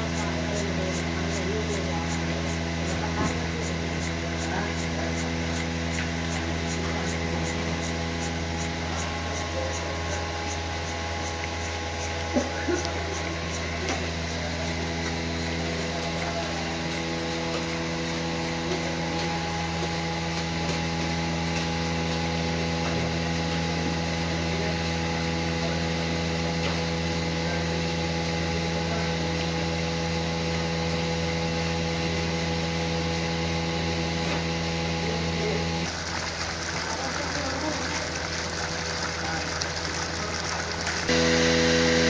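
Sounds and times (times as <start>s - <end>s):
pulsator ticking: 0.0s - 26.1s
vacuum pump humming: 0.0s - 42.0s.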